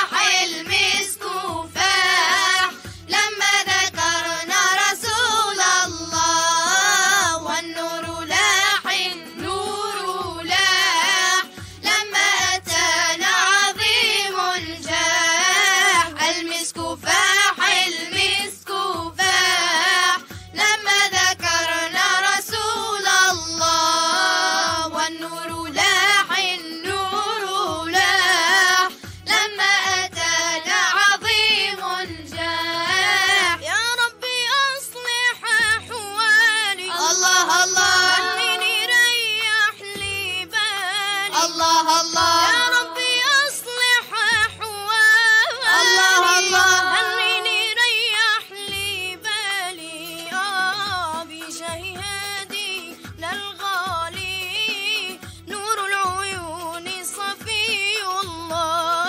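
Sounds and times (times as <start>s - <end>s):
young voices singing: 0.0s - 33.8s, 35.6s - 48.2s.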